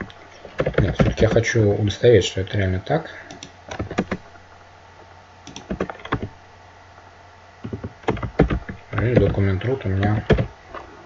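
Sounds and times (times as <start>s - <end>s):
computer keyboard typing: 3.3s - 4.2s, 5.4s - 6.3s, 7.6s - 9.4s.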